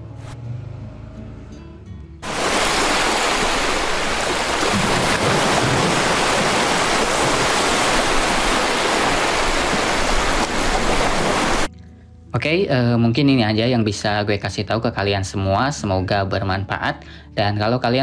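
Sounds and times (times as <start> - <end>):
ocean waves: 2.2 - 11.7.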